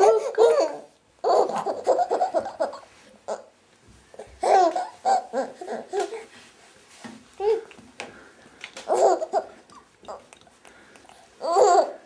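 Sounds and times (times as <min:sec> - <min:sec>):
baby laughing: 0:00.0 - 0:03.5, 0:04.2 - 0:06.3, 0:08.8 - 0:10.3, 0:11.4 - 0:12.0.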